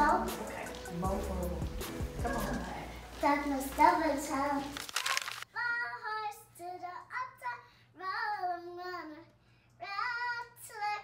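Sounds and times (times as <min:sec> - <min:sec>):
girl singing unaccompanied: 0:00.0 - 0:01.5, 0:03.2 - 0:04.8, 0:05.5 - 0:11.0.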